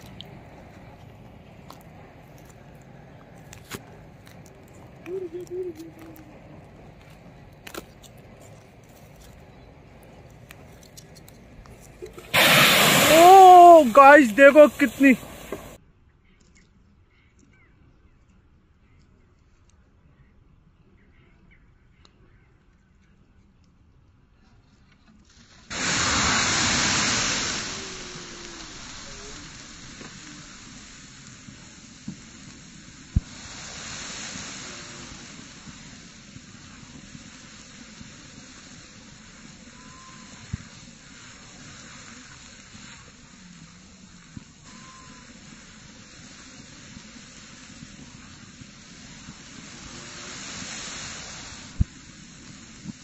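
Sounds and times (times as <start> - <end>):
fire crackling: 0.0 - 15.8, 25.3 - 53.0
rush of flame: 0.0 - 15.8, 25.3 - 53.0
sharp pops: 10.0 - 15.8, 25.3 - 39.7.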